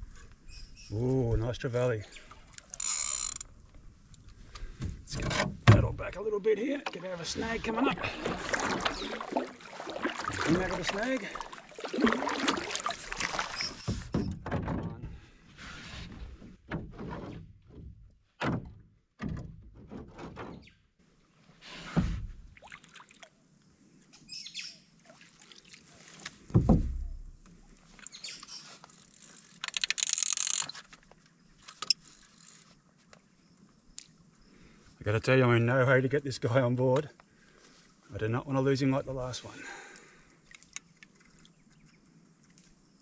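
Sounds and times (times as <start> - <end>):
water sloshing: 6.6 - 14.5, 22.3 - 23.4, 24.9 - 33.1, 40.1 - 42.8
paddle knocking on hull: 6.8 - 15.2, 26.4 - 27.4.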